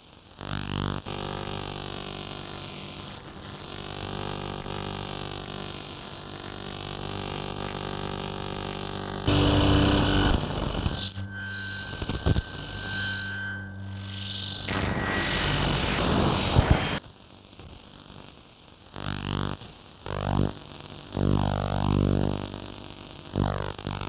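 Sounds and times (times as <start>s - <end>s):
burst of harsh noise: 9.3s - 17.0s
drone of held tones: 9.3s - 17.0s.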